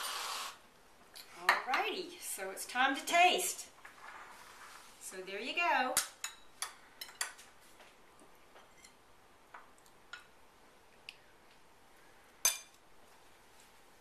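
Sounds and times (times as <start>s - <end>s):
metal spoons clinking on glass dishes: 6.2s - 7.4s, 12.4s - 12.8s.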